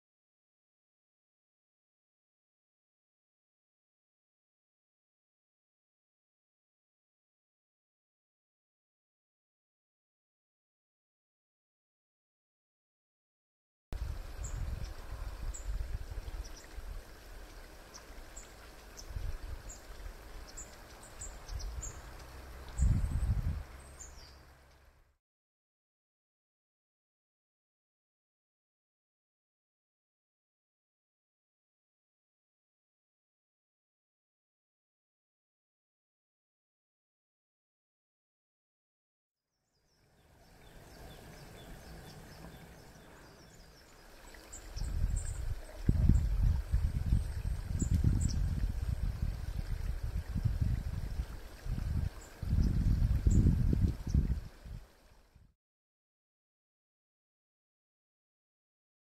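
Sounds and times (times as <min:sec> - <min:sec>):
stream trickling: 0:14.0 - 0:25.2, 0:39.8 - 0:55.5
small birds chirping: 0:14.3 - 0:25.0, 0:39.7 - 0:54.4.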